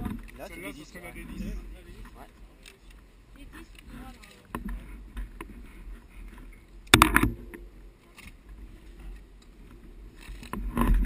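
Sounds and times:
wind rumble on microphone: 0:03.3 - 0:11.0.

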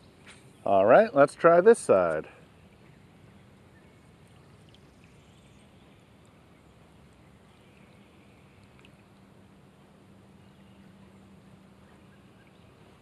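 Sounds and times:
light rain falling on a pond: 0:00.0 - 0:13.0
low steady hum: 0:00.0 - 0:13.0
soft drop ticks: 0:08.6 - 0:09.0.

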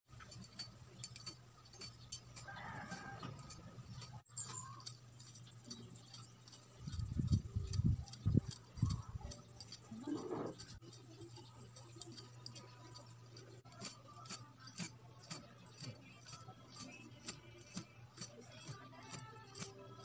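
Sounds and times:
rooster crowing: 0:02.4 - 0:03.7.

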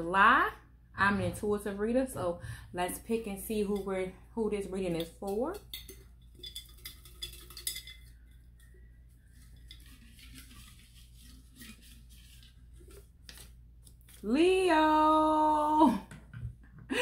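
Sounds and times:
paper slips rattling in glass jar: 0:06.2 - 0:14.3.

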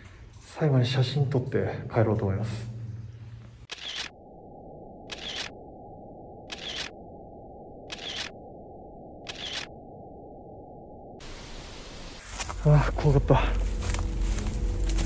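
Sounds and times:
camera shutter clicking: 0:03.7 - 0:04.1, 0:05.1 - 0:05.5, 0:06.5 - 0:06.9, 0:07.9 - 0:08.3, 0:09.3 - 0:09.7
steady low hiss: 0:11.2 - 0:14.8.

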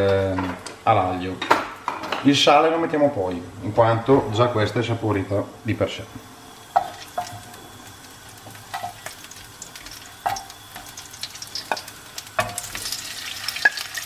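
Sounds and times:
oil sizzling in frying pan: 0:06.2 - 0:14.0.

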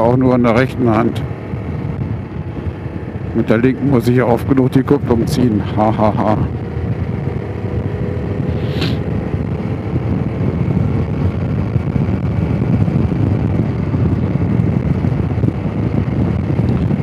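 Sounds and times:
motorcycle engine running: 0:00.0 - 0:17.0
brief hiss: 0:08.6 - 0:09.0.

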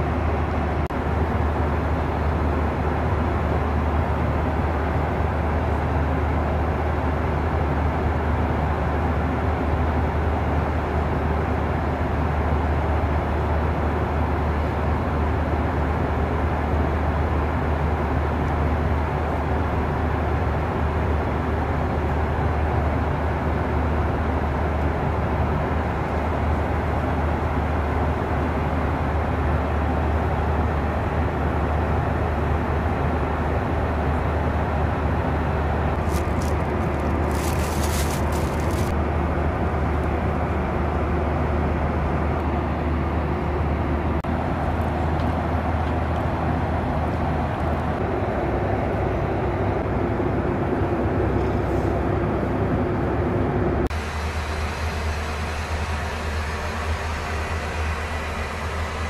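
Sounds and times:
airplane cabin drone: 0:00.0 - 0:59.0
handling noise crackle: 0:36.0 - 0:39.0.

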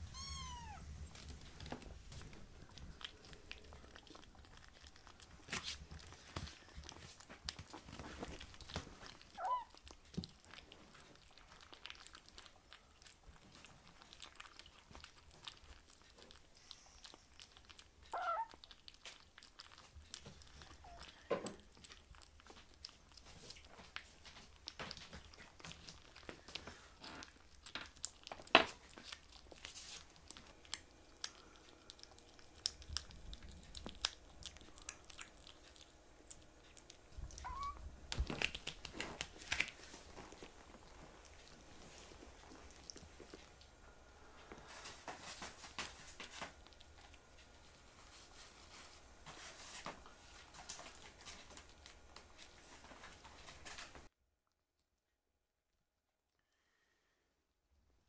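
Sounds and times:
kittens chewing and crunching: 0:00.0 - 0:54.6
kitten high-pitched squeaks: 0:00.1 - 0:00.8, 0:09.4 - 0:09.8, 0:18.1 - 0:18.6, 0:37.4 - 0:37.8.

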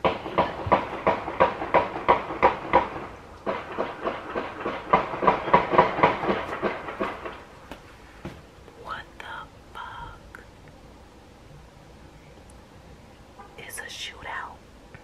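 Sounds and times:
hands drumming on cardboard box: 0:00.0 - 0:07.4.

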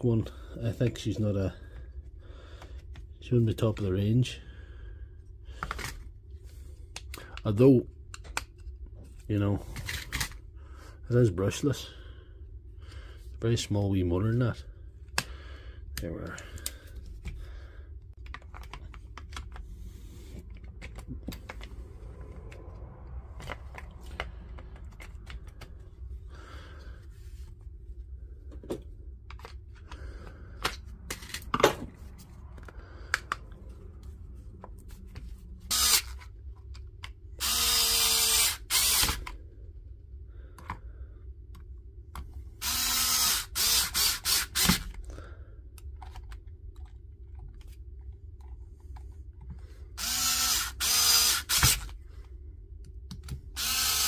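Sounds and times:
parts clicking and tapping: 0:08.1 - 0:08.9, 0:18.1 - 0:19.6, 0:20.4 - 0:21.8, 0:23.4 - 0:25.8, 0:52.8 - 0:54.0
power tool motor whirring: 0:35.7 - 0:36.2, 0:37.4 - 0:39.3, 0:42.6 - 0:44.9, 0:50.0 - 0:51.9, 0:53.6 - 0:54.0.

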